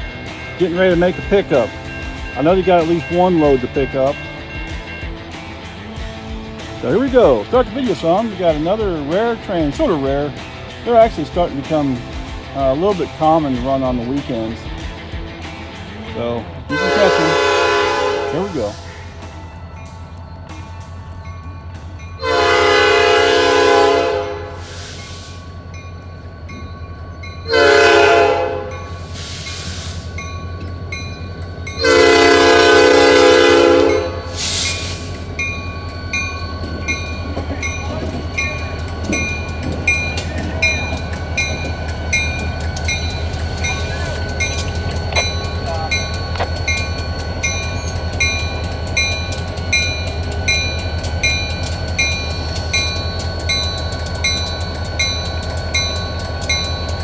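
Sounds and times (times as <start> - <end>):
crossing bell ringing: 0.0 - 57.0
diesel engine working: 0.0 - 57.0
locomotive horn blasts: 16.7 - 18.8, 22.2 - 24.9, 27.4 - 29.0, 31.8 - 34.4.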